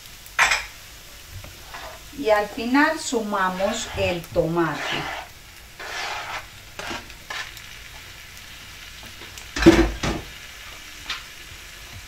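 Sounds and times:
spatula scraping cutting board: 0:01.6 - 0:02.1, 0:03.2 - 0:07.5.

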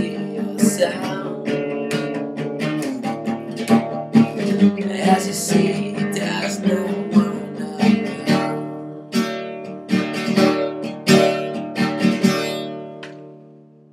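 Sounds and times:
classical guitar strumming: 0:00.0 - 0:13.9.

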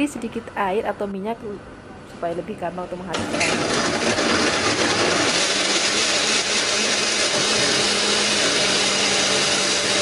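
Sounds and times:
electric blender running: 0:03.1 - 0:10.0.

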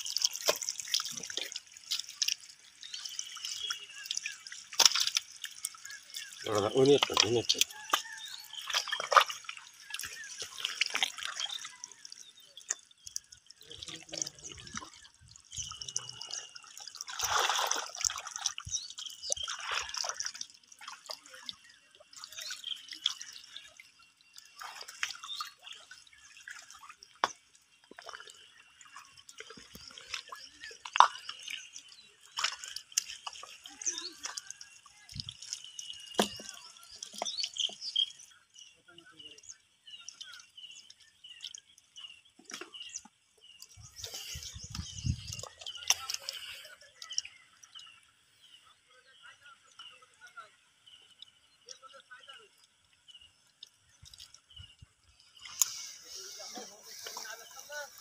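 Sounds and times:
muddy water splashing: 0:00.0 - 0:58.0.

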